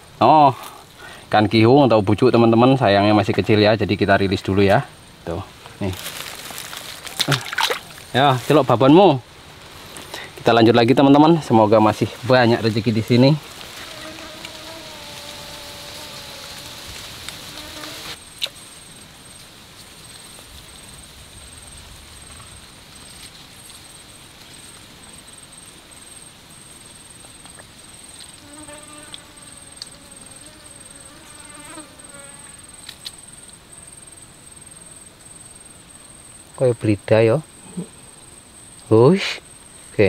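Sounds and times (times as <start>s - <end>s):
high-pitched insect whine: 0.0s - 40.0s
flying insect buzzing: 12.3s - 20.4s, 23.1s - 36.0s.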